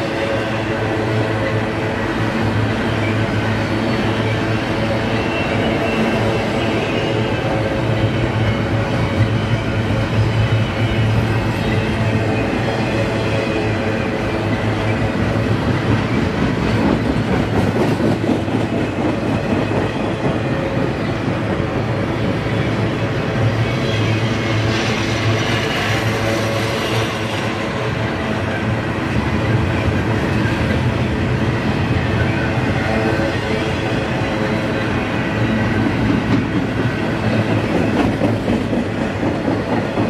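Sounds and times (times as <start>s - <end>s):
freight train wheels clattering: 8.6s - 40.0s.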